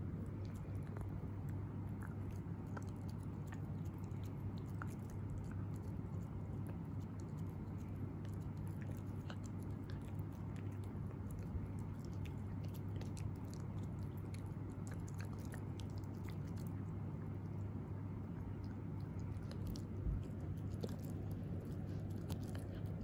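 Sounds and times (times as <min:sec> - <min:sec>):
puppy chewing a dog chew: 0:00.0 - 0:23.0
steady low hum: 0:00.0 - 0:23.0.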